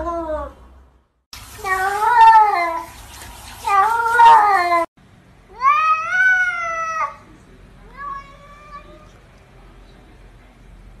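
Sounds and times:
cats meowing: 0:01.6 - 0:02.8, 0:03.6 - 0:04.9.

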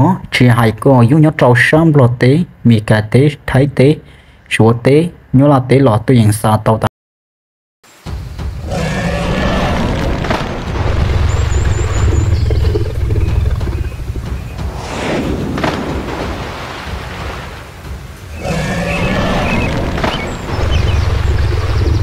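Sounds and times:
background music: 0:08.0 - 0:22.0
heavy low rumble: 0:08.2 - 0:17.0, 0:17.6 - 0:22.0
creature roaring and growling: 0:08.6 - 0:10.6, 0:18.4 - 0:20.0.

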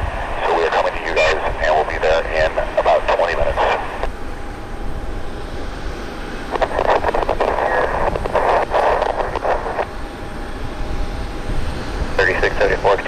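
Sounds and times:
wind rumbling on microphone: 0:00.0 - 0:13.0
tinny radio chatter: 0:00.4 - 0:04.1, 0:06.5 - 0:09.9, 0:12.2 - 0:13.0.

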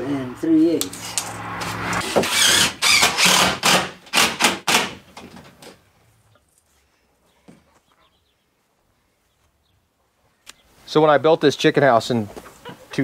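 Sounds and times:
saw cutting a board: 0:01.0 - 0:05.0.

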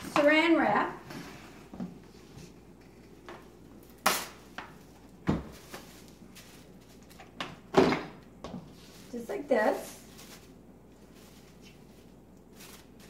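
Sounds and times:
plastic wrap crinkling: 0:03.8 - 0:07.4, 0:08.8 - 0:13.0.

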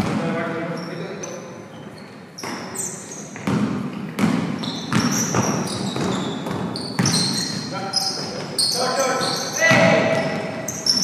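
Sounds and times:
basketball bouncing on court: 0:00.0 - 0:00.5, 0:02.4 - 0:07.8, 0:09.2 - 0:11.0
sneakers squeaking on floor: 0:00.0 - 0:11.0.

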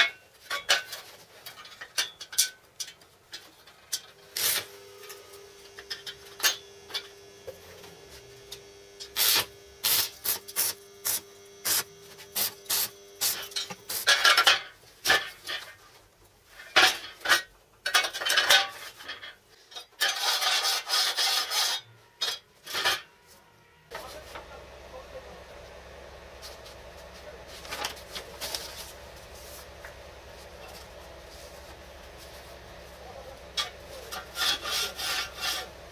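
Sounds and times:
rasping strokes on steel: 0:20.0 - 0:23.1, 0:33.5 - 0:35.9.

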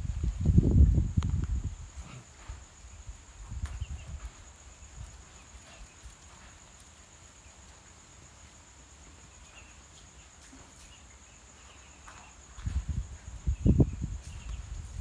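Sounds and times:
crickets trilling: 0:00.0 - 0:15.0
low rumbling thumps on microphone: 0:12.6 - 0:15.0.

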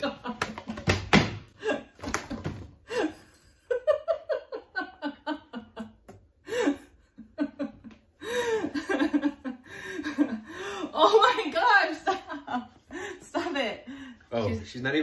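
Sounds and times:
woman laughing: 0:02.9 - 0:13.9.

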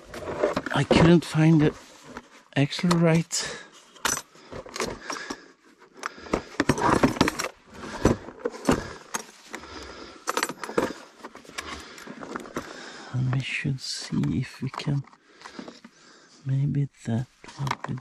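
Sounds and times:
plastic case clicking and knocking: 0:06.0 - 0:09.3.

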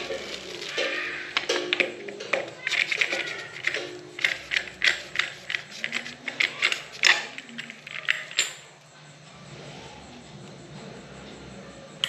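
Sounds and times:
metallic clicks and rattles: 0:00.0 - 0:08.7.

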